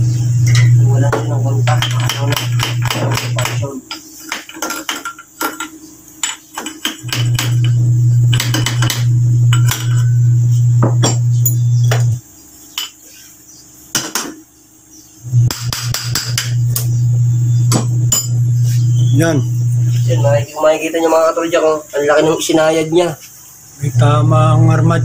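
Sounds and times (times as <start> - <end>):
loud steady low hum: 0.0 - 3.8, 7.0 - 12.2, 15.2 - 20.7, 23.7 - 25.0
metal tools clinking and knocking: 3.9 - 7.2.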